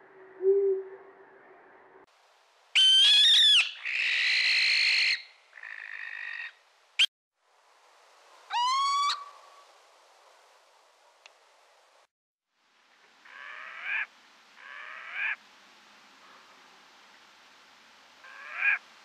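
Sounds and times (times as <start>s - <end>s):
owl shrieking and screeching: 2.8s - 6.5s, 8.5s - 9.3s, 18.3s - 18.8s.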